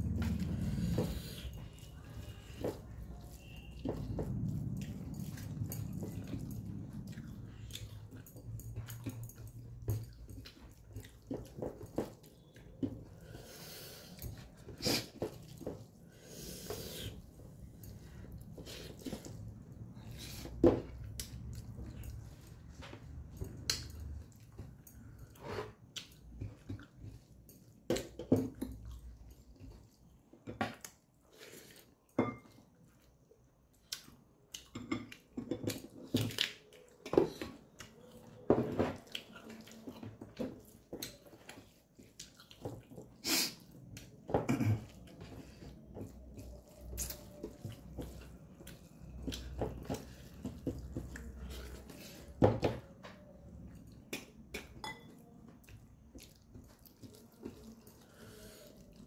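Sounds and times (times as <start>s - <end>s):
chewing and mouth smacks: 0.0s - 13.2s, 17.1s - 59.0s.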